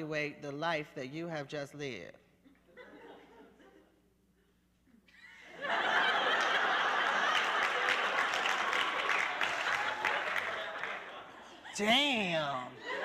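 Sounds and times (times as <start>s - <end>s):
audience laughing: 5.2s - 13.0s
audience applause: 5.6s - 11.3s.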